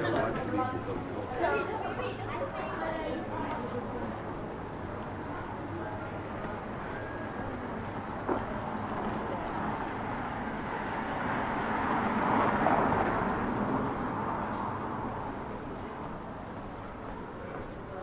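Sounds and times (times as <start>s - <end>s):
vehicle passing by: 9.7s - 15.7s.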